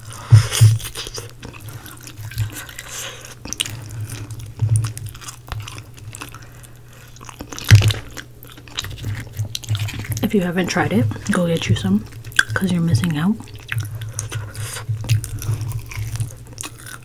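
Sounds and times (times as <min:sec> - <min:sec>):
wet chewing: 0:00.0 - 0:17.0
crunching bites: 0:13.4 - 0:17.0.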